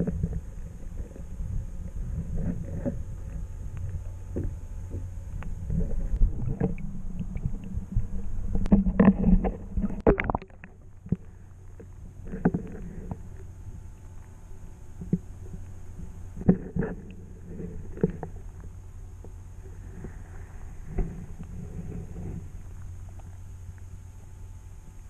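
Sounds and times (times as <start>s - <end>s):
muffled underwater rumble: 0.0s - 25.0s
underwater knocks: 5.7s - 11.2s
water splashing: 5.7s - 11.4s.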